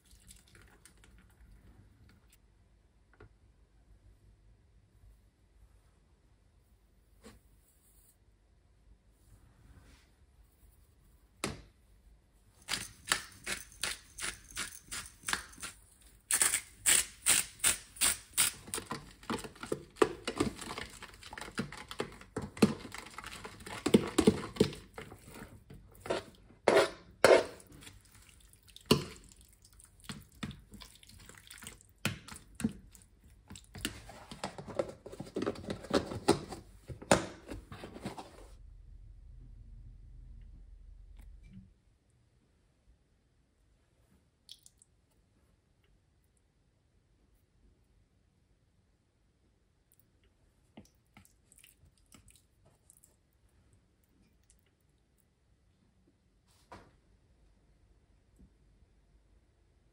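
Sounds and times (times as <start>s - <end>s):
knocks and scrapes on container: 18.7s - 27.9s.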